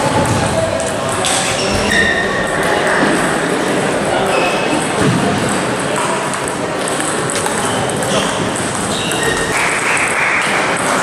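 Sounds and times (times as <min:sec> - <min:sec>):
table tennis balls clicking: 0:04.7 - 0:11.0.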